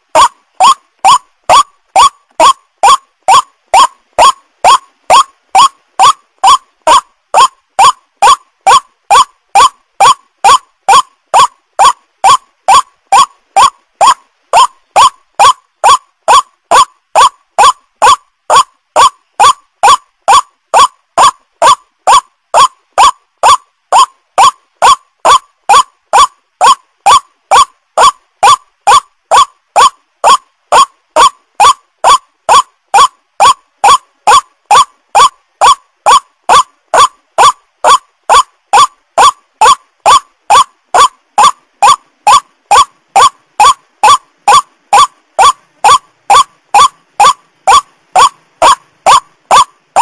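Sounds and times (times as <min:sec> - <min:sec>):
waterhen calling: 0:00.2 - 0:29.9.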